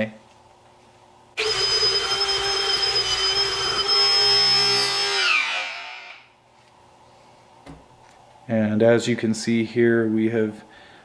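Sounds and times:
cordless drill whining: 1.4 - 6.3.

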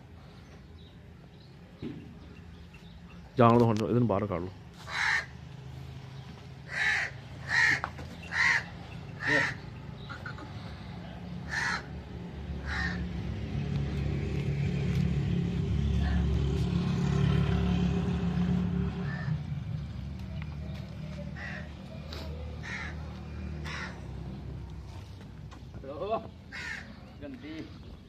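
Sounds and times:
crow cawing: 4.8 - 5.4, 6.7 - 10.8, 11.4 - 12.0, 12.6 - 13.2, 19.0 - 19.4, 21.4 - 21.7, 22.6 - 24.1, 26.5 - 27.0
low steady rumble: 13.2 - 21.4.

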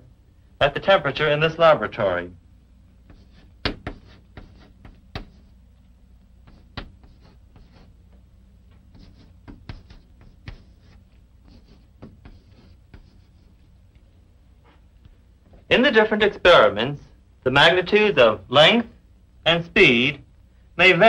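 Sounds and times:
faint low hum: 0.0 - 21.0
chalk tapping and scratching: 3.0 - 5.6, 6.4 - 13.8.

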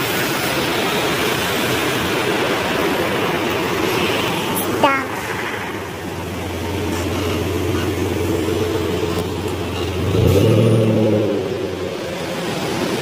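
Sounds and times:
car engine hum: 0.0 - 13.0
tyres hissing on wet road: 0.0 - 13.0.

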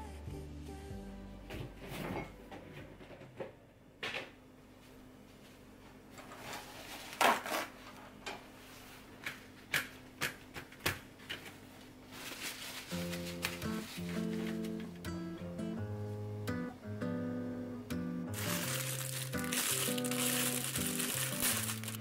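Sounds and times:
paper towel rustling and tearing: 12.1 - 14.8, 18.4 - 22.0.

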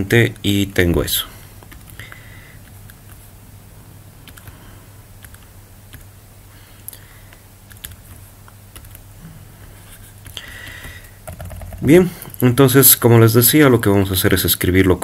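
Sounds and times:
faint low hum: 0.0 - 15.0
computer clicks and taps: 4.2 - 4.6, 5.2 - 6.1, 7.3 - 9.0, 10.2 - 11.9.

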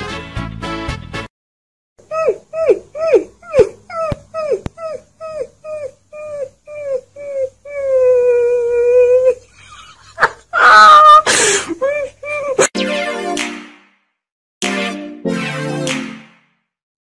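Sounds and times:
puppy yelping and howling: 2.2 - 9.4.

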